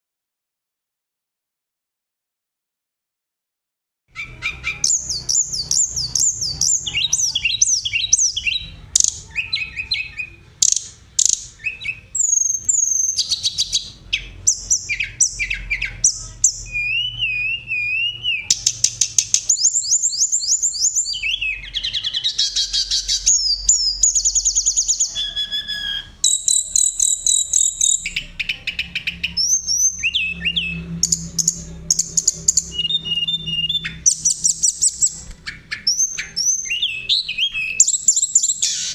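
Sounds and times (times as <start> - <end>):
flycatcher singing: 4.1 - 38.9.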